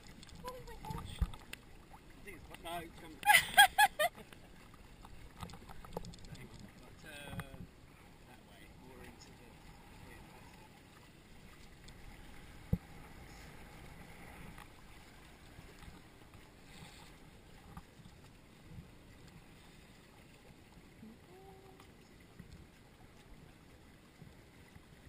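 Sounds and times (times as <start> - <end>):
water sloshing against hulls: 0.0 - 25.0.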